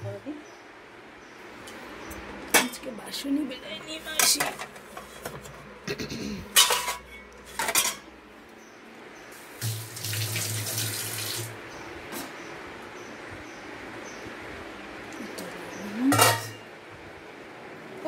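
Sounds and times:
steel bowls and pots clanking: 6.5s - 8.1s, 16.0s - 16.7s.

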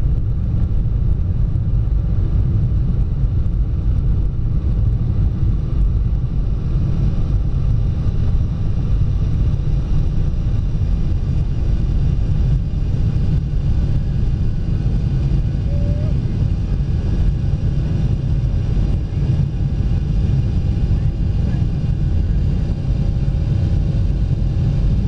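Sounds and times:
jet engines roaring: 6.4s - 25.0s.

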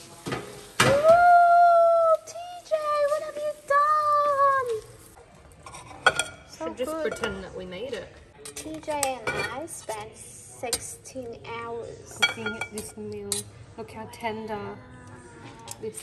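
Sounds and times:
dishes clinking: 5.6s - 7.6s, 8.4s - 9.9s, 12.1s - 13.5s.

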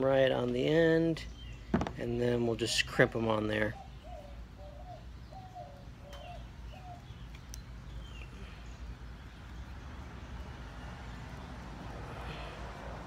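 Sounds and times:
dove cooing: 3.6s - 7.1s.

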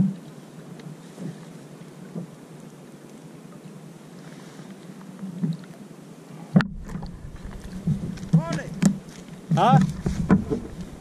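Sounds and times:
water lapping against kayak: 0.0s - 11.0s
wind on microphone: 6.6s - 8.9s, 9.8s - 11.0s
knock on kayak: 7.9s - 10.8s.

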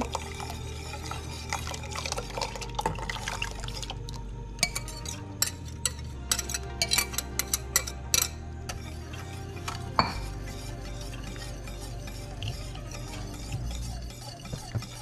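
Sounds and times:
cream pouring into saucepan: 0.0s - 4.2s.

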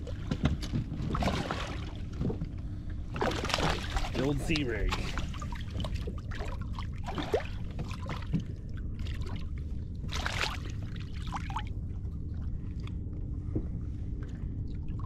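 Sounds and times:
low rumble: 0.0s - 15.0s
water sloshing around boat: 0.0s - 15.0s
water splash: 1.2s - 2.1s, 3.2s - 8.2s.

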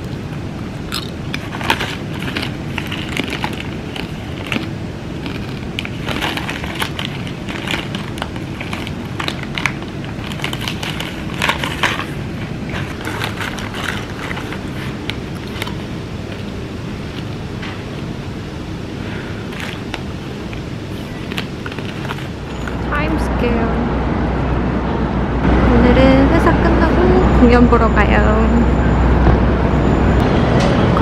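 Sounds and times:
low steady hum: 0.0s - 31.0s
crisp chips crunching: 0.8s - 17.3s, 19.4s - 22.4s
snack bag crinkling: 0.9s - 17.4s, 19.5s - 22.4s.

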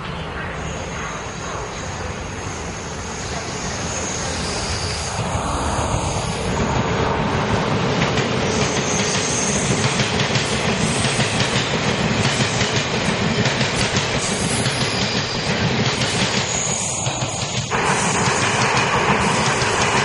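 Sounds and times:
faint high whine: 0.0s - 9.7s
train passing: 0.0s - 20.0s.

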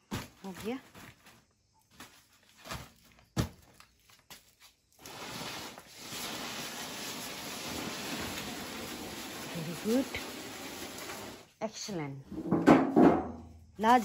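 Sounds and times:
steady hiss: 5.0s - 11.6s
plastic bucket lid knocks: 12.4s - 13.4s.

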